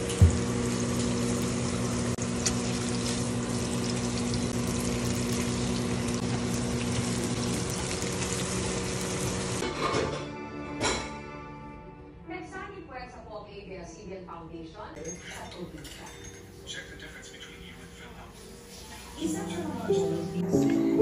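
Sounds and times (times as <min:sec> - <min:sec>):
meat sizzling in oil: 0:00.0 - 0:09.6.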